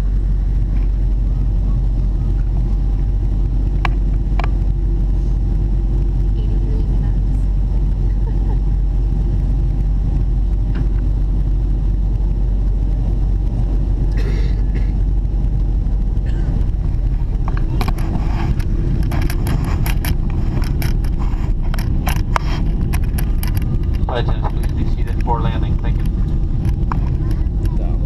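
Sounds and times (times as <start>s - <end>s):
airliner cabin rumble: 0.0s - 28.0s
clicks and rustles: 16.2s - 27.8s.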